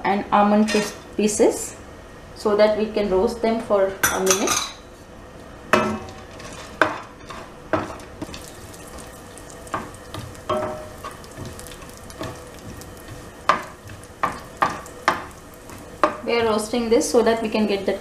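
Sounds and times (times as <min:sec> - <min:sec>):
wooden spatula scraping a pan: 0:06.2 - 0:08.7
nuts sizzling in hot fat: 0:06.2 - 0:18.0.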